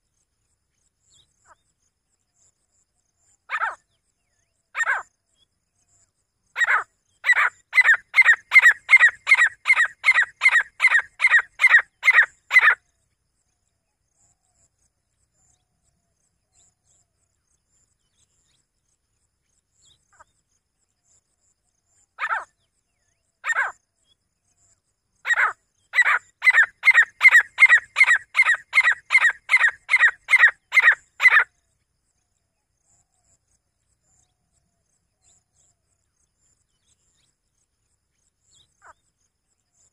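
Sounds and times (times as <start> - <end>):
francolin calling: 6.6 - 12.8, 25.2 - 31.5.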